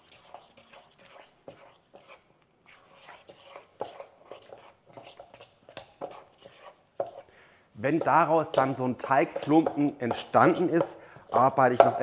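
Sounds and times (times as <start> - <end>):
fork scraping metal bowl: 0.0 - 7.3, 7.9 - 12.0.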